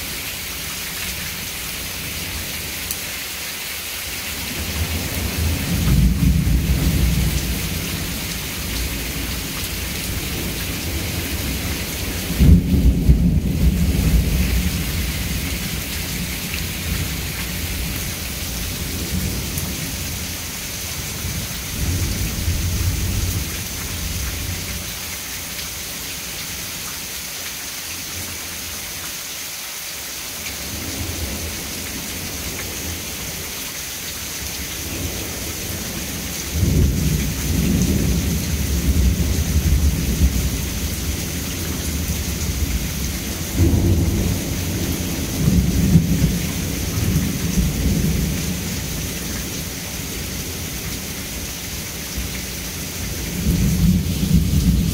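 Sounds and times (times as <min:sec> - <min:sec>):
steady rain falling: 0:00.0 - 0:54.9
rolling thunder: 0:04.6 - 0:20.0, 0:36.5 - 0:48.9.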